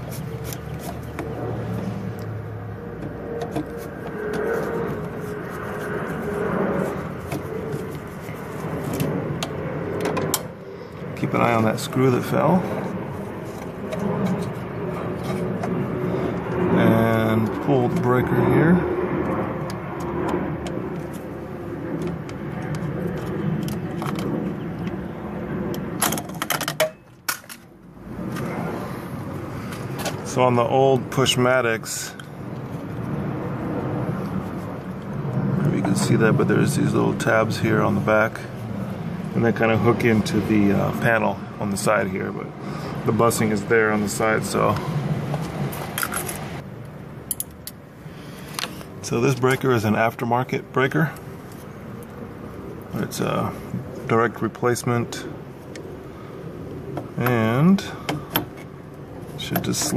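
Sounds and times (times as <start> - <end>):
car engine rumbling: 0.0 - 59.9.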